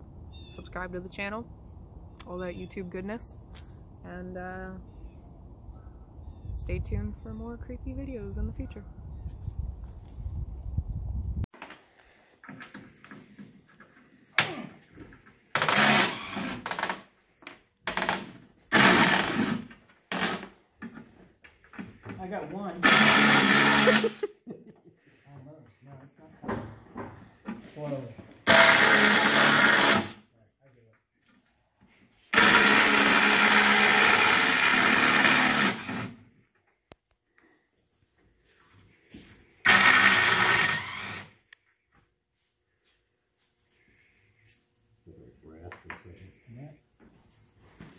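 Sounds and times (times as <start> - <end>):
cordless drill bursts: 15.6 - 17.0, 17.9 - 20.5, 22.8 - 24.2, 28.4 - 30.2, 32.3 - 36.2, 39.6 - 41.4.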